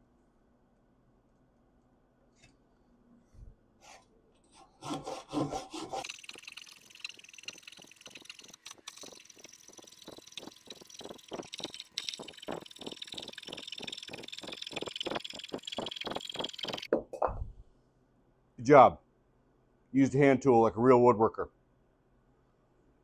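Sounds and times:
hand saw cutting wood: 3.9s - 6.3s.

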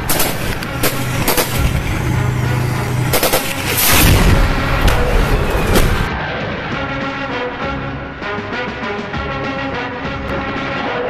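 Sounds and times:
rifle shots: 0.0s - 6.1s
steady low hum: 0.0s - 6.1s
heavy blast: 0.0s - 7.5s.

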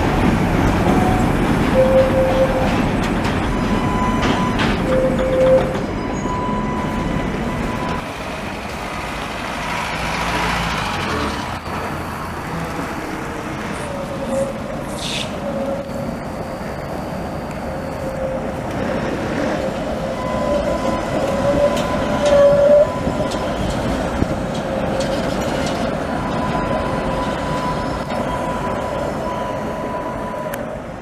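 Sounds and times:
tram whining on rails: 0.0s - 31.0s.

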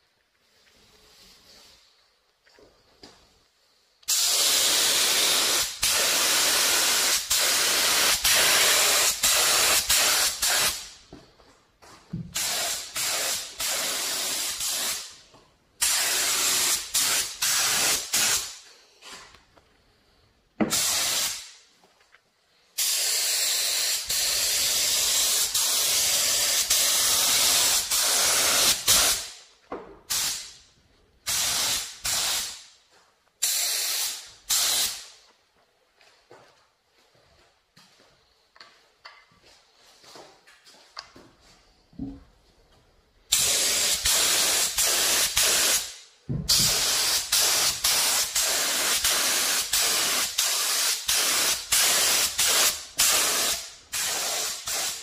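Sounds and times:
spray gun hissing: 4.1s - 11.0s, 12.3s - 15.2s, 15.8s - 18.6s, 20.7s - 21.6s, 22.8s - 29.4s, 30.1s - 30.6s, 31.3s - 32.6s, 33.4s - 35.1s, 43.3s - 55.0s.

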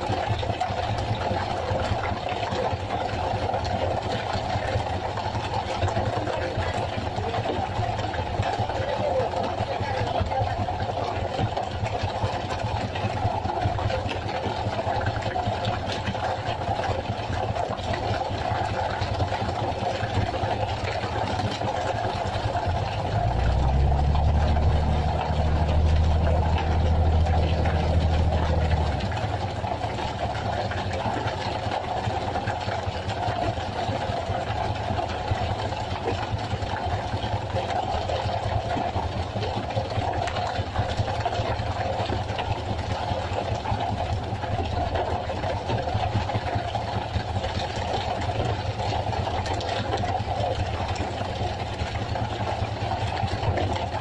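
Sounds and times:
boat engine running: 0.0s - 54.0s
deeper louder drone: 22.0s - 31.5s.

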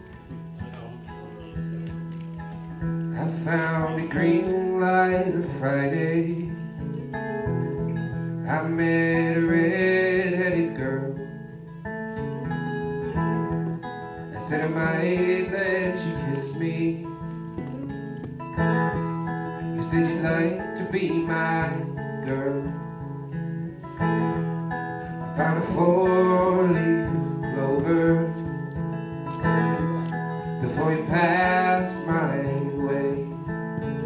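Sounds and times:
acoustic guitar: 0.0s - 34.0s
person singing: 3.2s - 7.2s, 14.3s - 17.3s, 19.5s - 23.0s, 25.1s - 34.0s.

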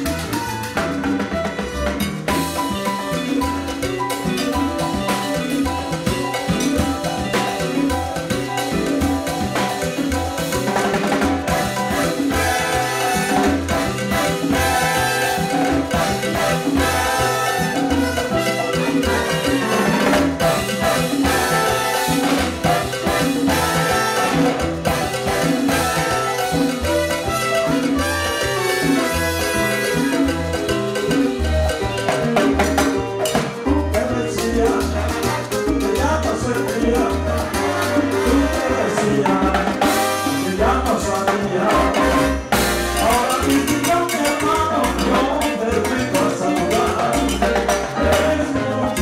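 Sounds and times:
congas and timbales: 0.0s - 49.0s
salsa orchestra playing: 0.0s - 49.0s
trombone and trumpet lines: 0.0s - 49.0s
horn section holding notes: 11.5s - 30.6s, 37.5s - 40.6s.

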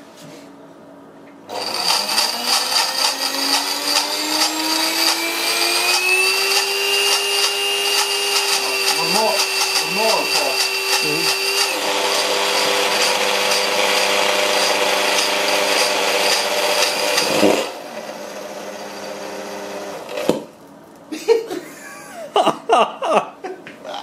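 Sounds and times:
electric motor running loudly: 1.5s - 20.2s.

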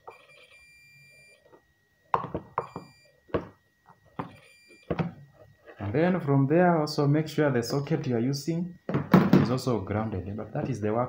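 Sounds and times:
multimeter continuity beep: 0.0s - 5.8s.

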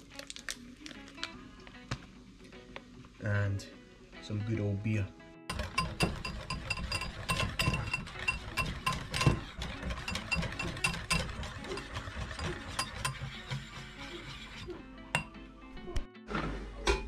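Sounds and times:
whisk beating batter in a bowl: 5.5s - 14.8s.

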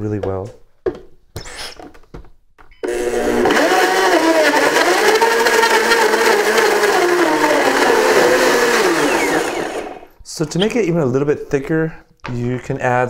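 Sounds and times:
blender running: 2.8s - 10.1s.

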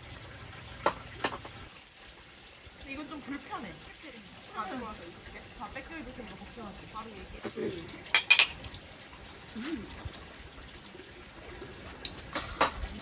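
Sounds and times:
drink pouring into glass: 8.0s - 8.8s
glass clinks: 8.1s - 8.6s.

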